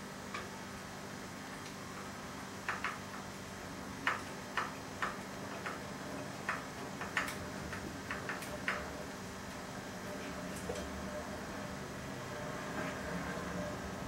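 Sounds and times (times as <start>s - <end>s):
small sharp clicks and taps: 2.6s - 3.2s, 4.0s - 5.8s, 6.4s - 8.9s.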